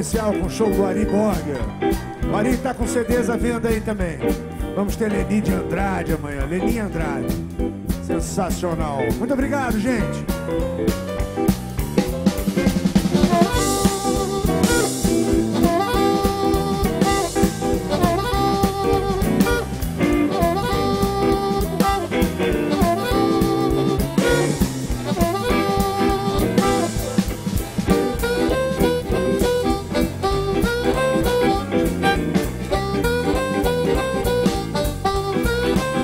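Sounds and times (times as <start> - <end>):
drum kit: 0.0 - 36.0
electric bass: 0.0 - 36.0
amplified harmonica playing: 12.6 - 36.0.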